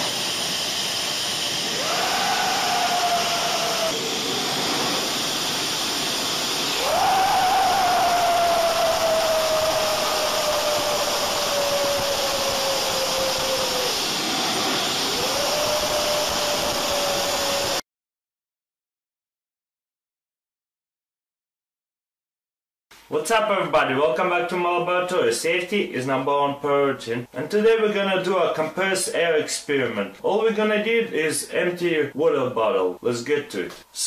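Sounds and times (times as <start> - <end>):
jet engine roaring and whining: 0.0 - 17.8.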